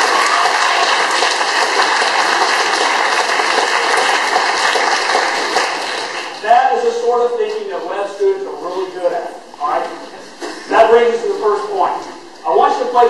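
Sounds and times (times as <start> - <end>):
audience applauding: 0.0 - 6.5.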